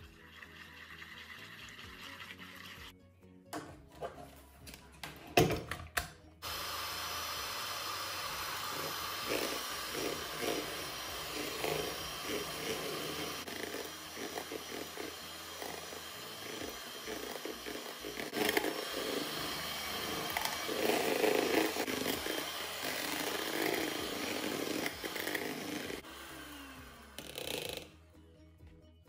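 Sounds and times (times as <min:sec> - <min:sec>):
electric hand mixer whipping: 0:06.4 - 0:28.0.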